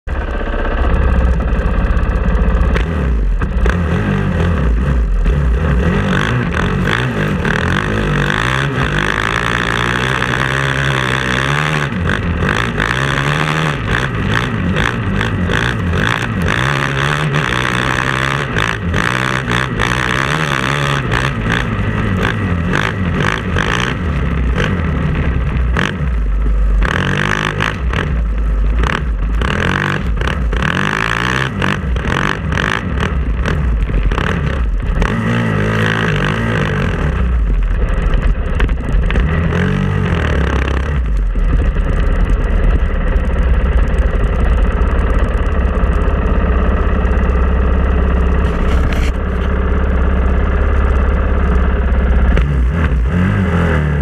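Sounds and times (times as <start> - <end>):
dirt bike engine running: 0.0 - 54.0.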